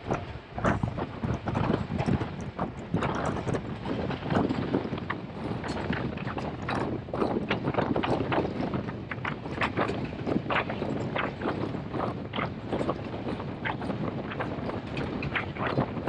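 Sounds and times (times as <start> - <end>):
wind on microphone: 0.0 - 16.0.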